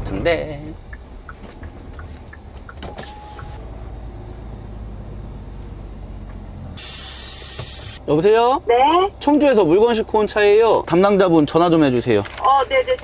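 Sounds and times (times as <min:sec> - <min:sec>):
diesel engine idling: 0:00.0 - 0:11.0
short beep: 0:02.9 - 0:03.6
burst of hiss: 0:06.8 - 0:08.0.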